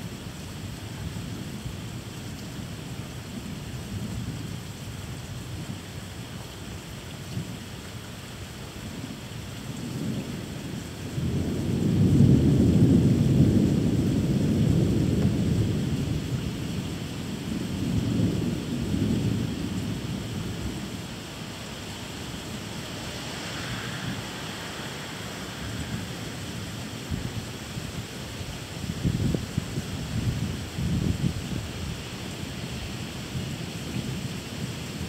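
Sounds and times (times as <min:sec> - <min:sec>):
rain hiss: 0:00.0 - 0:35.0
rolling thunder: 0:09.8 - 0:21.2, 0:22.0 - 0:28.1.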